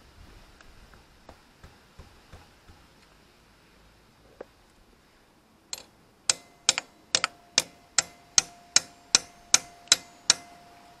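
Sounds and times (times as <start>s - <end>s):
ratchet wrench clicking: 5.8s - 10.5s.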